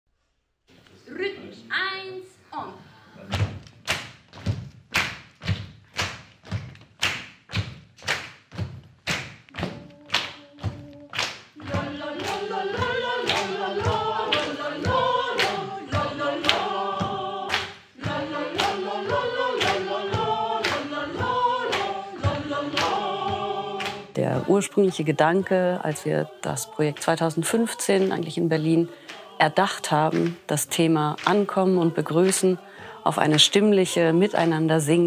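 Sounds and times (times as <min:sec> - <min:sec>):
body percussion hits: 0:03.3 - 0:25.2
choir singing: 0:09.6 - 0:35.0.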